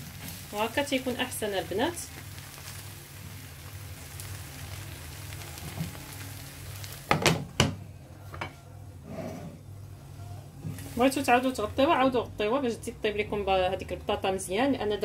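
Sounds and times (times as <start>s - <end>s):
pie sizzling in frying pan: 0.0s - 7.8s, 10.6s - 14.3s.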